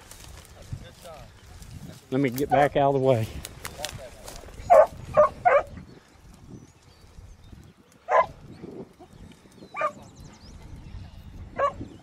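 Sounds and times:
hounds barking: 4.6s - 5.8s, 8.0s - 8.4s, 9.7s - 10.1s, 11.5s - 12.0s.

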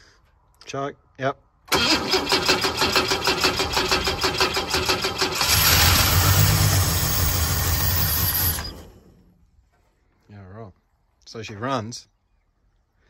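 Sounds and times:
car engine cranking and starting: 1.7s - 9.3s.

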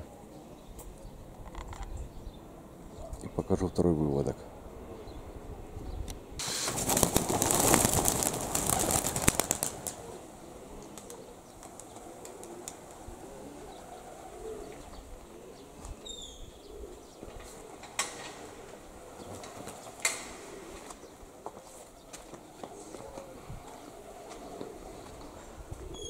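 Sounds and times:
pigeon wings clattering: 6.4s - 10.2s.

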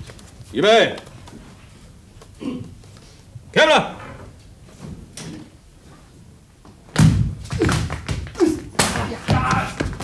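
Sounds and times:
thuds and slaps of blows: 6.9s - 10.0s
stamping feet: 7.0s - 10.0s
short falling shouts: 8.4s - 10.0s.

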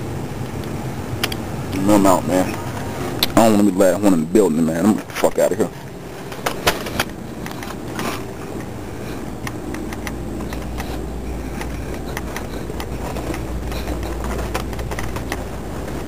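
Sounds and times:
low handling rumble on microphone: 0.0s - 16.0s
handling clicks and taps: 0.5s - 1.4s, 9.4s - 16.0s.

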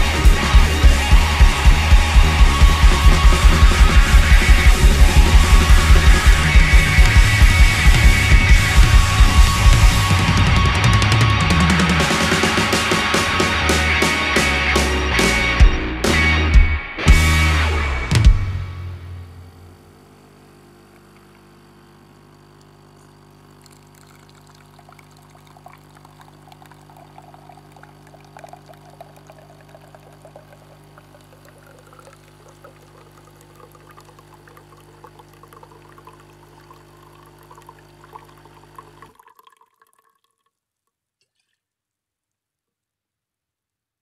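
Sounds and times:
low electrical hum: 18.8s - 39.1s
faint crackling trickling noise: 20.8s - 42.4s.

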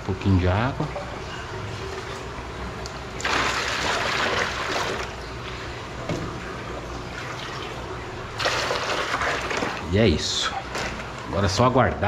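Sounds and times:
water pouring and splashing: 3.2s - 5.7s, 7.0s - 9.9s.

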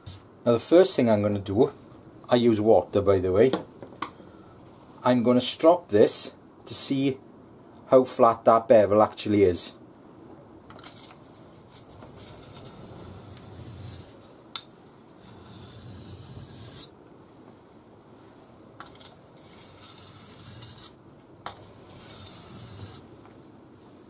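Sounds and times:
knife scraping on sharpening plate: 18.8s - 23.0s.

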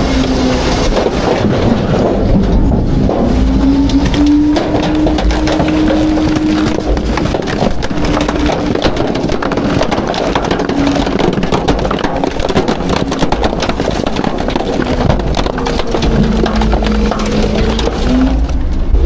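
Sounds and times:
trash crushing with cracks: 0.0s - 19.0s
truck engine and hydraulics rumbling: 0.0s - 19.0s.

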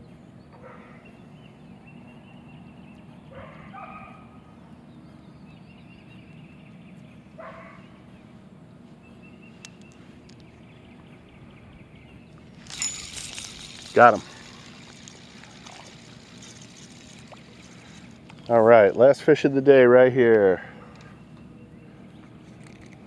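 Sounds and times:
steady low hum: 0.0s - 23.0s
thin high chirps: 12.4s - 18.6s.

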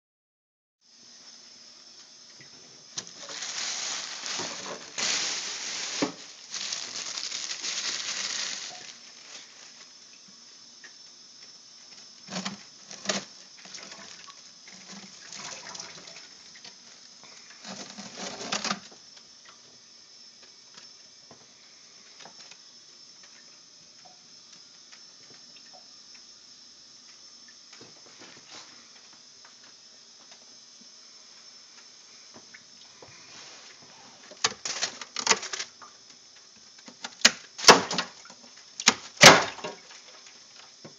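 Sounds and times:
faint steady hiss: 0.8s - 40.9s
plastic sheeting rustling: 3.0s - 9.9s, 33.3s - 35.7s.

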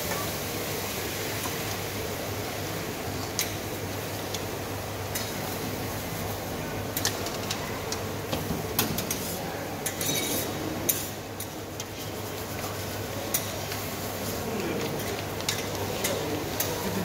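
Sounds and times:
metal utensils clinking on pots: 8.9s - 11.6s.

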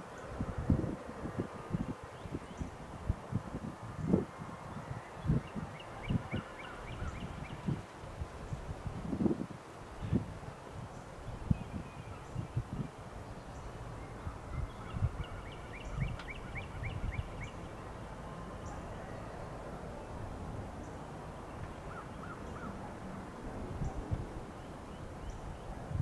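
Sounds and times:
birds chirping: 5.1s - 7.8s, 10.9s - 25.8s.

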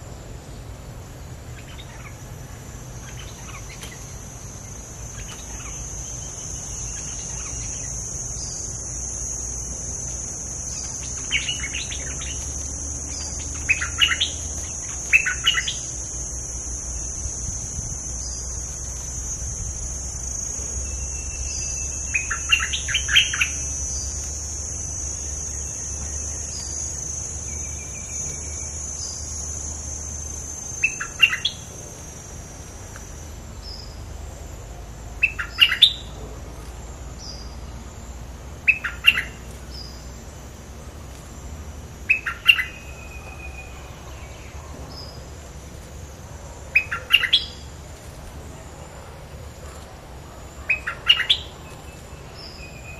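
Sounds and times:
high insect buzz: 0.0s - 48.7s
bird chirping phrases: 1.5s - 31.7s, 50.6s - 52.9s.

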